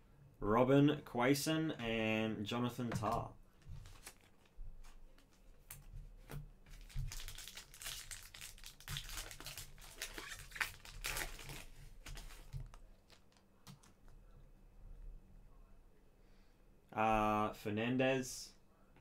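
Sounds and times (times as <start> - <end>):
foil wrapper crinkling: 3.8 - 5.3, 6.7 - 13.4.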